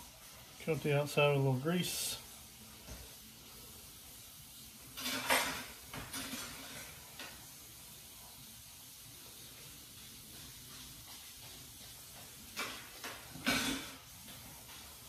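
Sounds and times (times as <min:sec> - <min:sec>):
faint hiss: 0:00.0 - 0:15.0
scrapes and light clatters: 0:04.9 - 0:07.5, 0:10.3 - 0:15.0.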